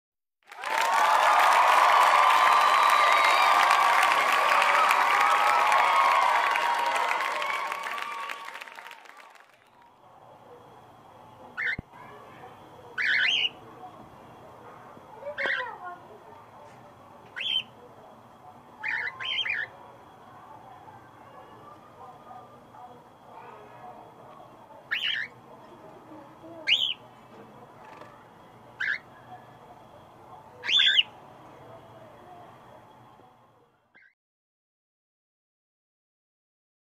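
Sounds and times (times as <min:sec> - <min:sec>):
applause-like noise: 0:00.4 - 0:10.0
cockatiel calling: 0:11.6 - 0:11.8, 0:13.0 - 0:13.6, 0:18.8 - 0:19.7, 0:24.9 - 0:25.4, 0:26.6 - 0:27.0, 0:28.8 - 0:29.1, 0:30.6 - 0:31.1.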